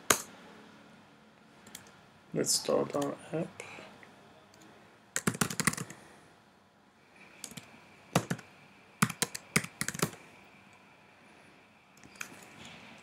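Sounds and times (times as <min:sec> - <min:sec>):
typing on computer keyboard: 0:05.2 - 0:06.0, 0:08.2 - 0:08.4, 0:09.0 - 0:10.2.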